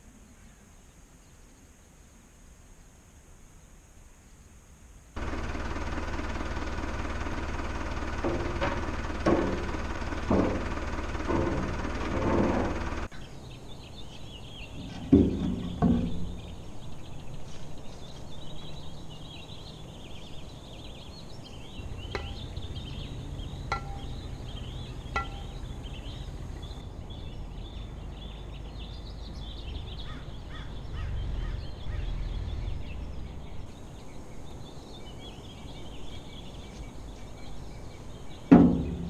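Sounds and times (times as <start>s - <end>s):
small birds chirping: 5.2s - 39.0s
tractor engine running: 5.2s - 39.0s
loud dull thumps: 8.0s - 13.1s, 14.8s - 16.6s, 21.8s - 26.8s, 38.5s - 39.0s
low rumble: 21.2s - 34.7s
sharp taps: 22.1s - 22.6s, 23.7s - 24.3s, 25.1s - 25.8s.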